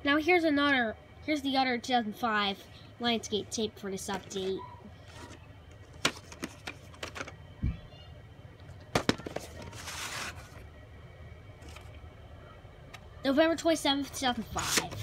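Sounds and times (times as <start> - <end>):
loud plastic clacks: 8.9 - 9.8
rustling scrape: 9.4 - 10.6.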